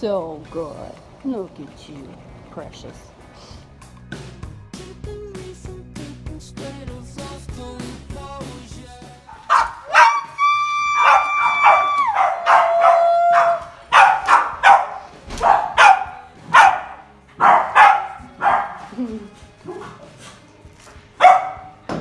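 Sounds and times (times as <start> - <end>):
background music: 0.0 - 22.0
small dogs yapping: 9.4 - 19.0
dog whining: 9.9 - 13.7.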